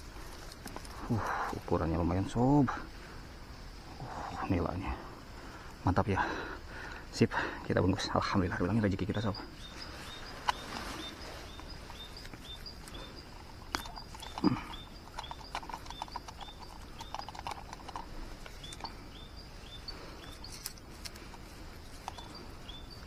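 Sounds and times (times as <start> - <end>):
hands rustling grass and leaves: 8.5 - 14.5, 18.2 - 23.0
sharp clicks: 11.6 - 19.0.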